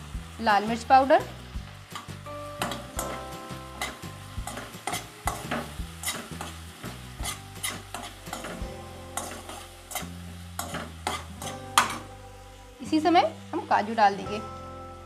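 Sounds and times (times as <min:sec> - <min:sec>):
oil sizzling: 0:00.0 - 0:15.0
metal spoon scraping pan: 0:03.8 - 0:06.6, 0:07.2 - 0:08.6, 0:09.2 - 0:12.0.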